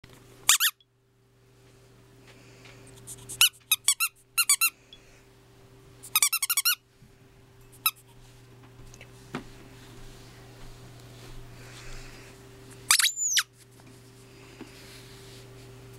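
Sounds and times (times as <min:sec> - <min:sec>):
squeaky dog toy squeaks: 0:00.5 - 0:00.8, 0:03.4 - 0:04.7, 0:06.1 - 0:06.8, 0:12.9 - 0:13.5.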